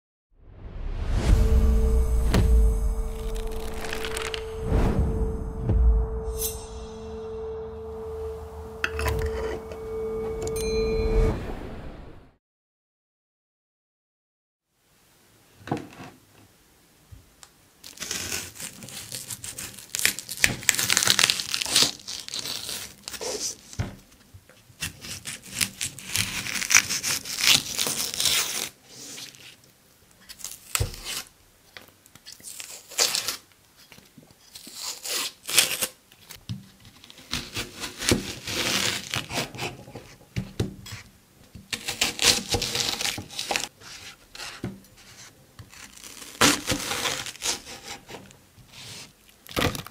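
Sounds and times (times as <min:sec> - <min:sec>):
onion skins crackling: 0:17.8 - 0:23.8, 0:32.2 - 0:33.6, 0:45.7 - 0:48.0
knife crunching through onion: 0:24.8 - 0:29.6, 0:30.2 - 0:31.3, 0:34.5 - 0:36.4, 0:40.8 - 0:49.8.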